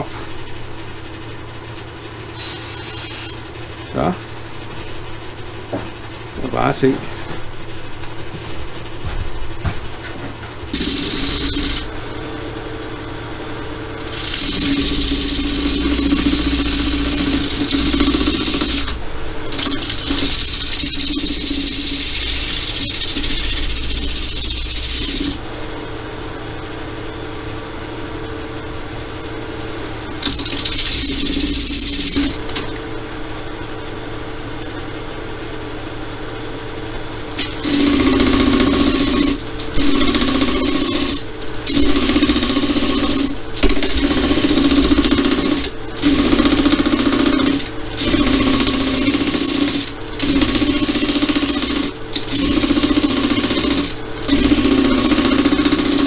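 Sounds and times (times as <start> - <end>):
sanding hiss: 2.4 - 3.4
lathe motor whine and hum: 10.2 - 56.0.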